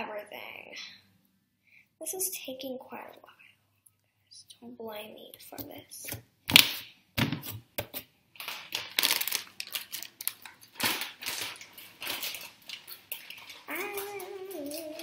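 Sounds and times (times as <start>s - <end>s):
small objects clicking and clattering: 8.4s - 15.0s.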